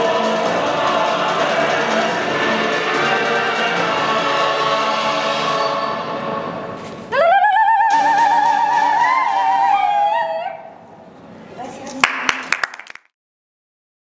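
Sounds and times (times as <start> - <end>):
oriental dance music: 0.0 - 5.7, 7.2 - 10.4.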